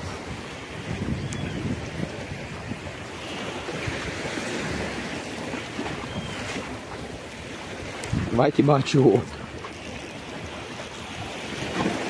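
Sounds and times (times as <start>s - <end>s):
sea surf washing in: 0.0s - 9.6s
wind rumbling on microphone: 0.0s - 12.0s.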